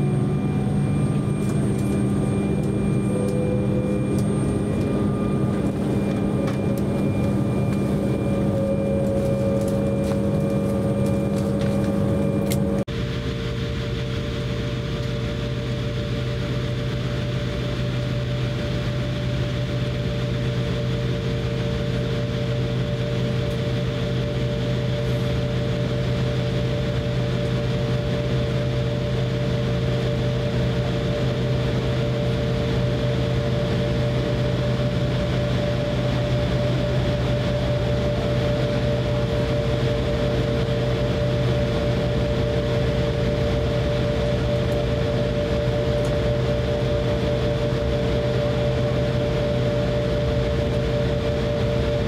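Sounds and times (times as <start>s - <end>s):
airliner cabin engine hum: 0.0s - 52.0s
constant cabin rush: 1.3s - 12.8s.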